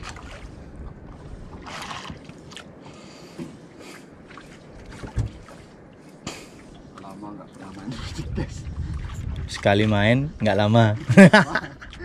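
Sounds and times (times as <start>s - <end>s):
water sloshing against boat hull: 0.0s - 12.0s
heavy thump on hull: 5.0s - 5.5s
wind noise: 7.7s - 12.0s.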